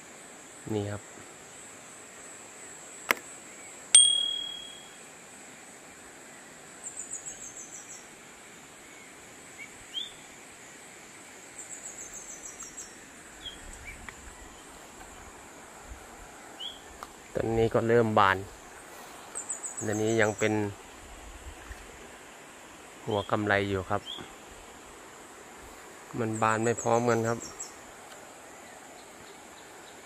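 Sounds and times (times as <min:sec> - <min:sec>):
high insect drone: 0:00.0 - 0:30.0
bird chirps: 0:04.0 - 0:05.0
metallic ding: 0:04.0 - 0:05.0.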